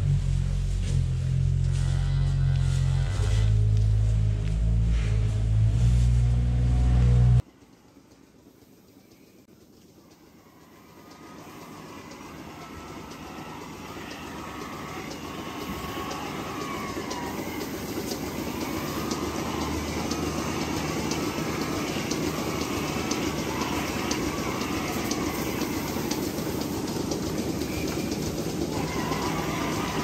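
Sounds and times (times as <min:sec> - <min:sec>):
milking machinery running: 0:00.0 - 0:30.0
quick mechanical clicks: 0:08.0 - 0:30.0.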